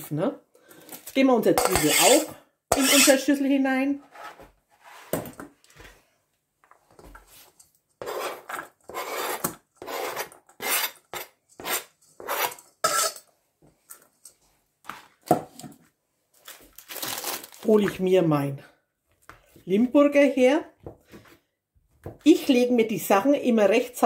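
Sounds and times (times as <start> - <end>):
onion scraped off cutting board: 8.0 - 13.2.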